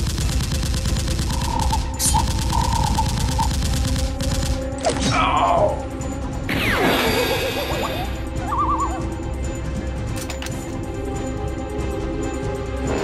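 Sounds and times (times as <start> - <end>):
automatic gunfire sound effect: 0.0 - 4.7.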